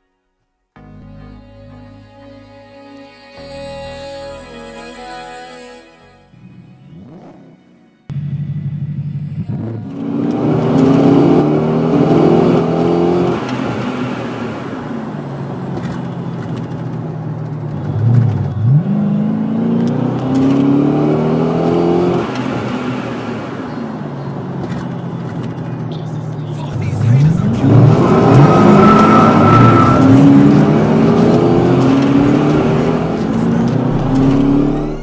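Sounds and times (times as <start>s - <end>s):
car engine accelerating: 6.3s - 35.0s.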